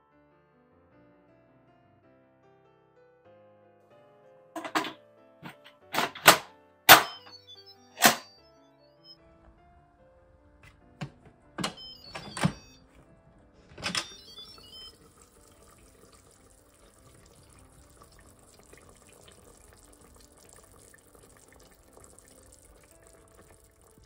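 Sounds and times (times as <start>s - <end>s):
pressure cooker lid clicks and clanks: 4.6s - 7.2s.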